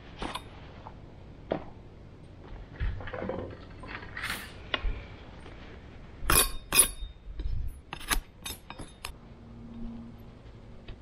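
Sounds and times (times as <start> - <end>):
metallic knife clinks: 6.3 - 7.2.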